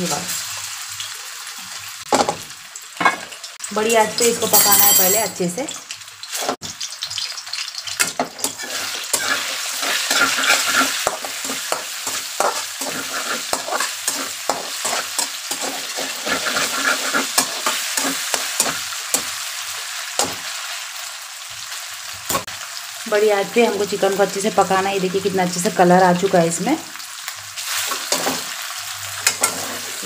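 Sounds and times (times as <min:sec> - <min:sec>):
chicken sizzling in hot oil: 0:00.0 - 0:30.0
metal spatula scraping a pan: 0:08.0 - 0:19.4, 0:27.6 - 0:30.0.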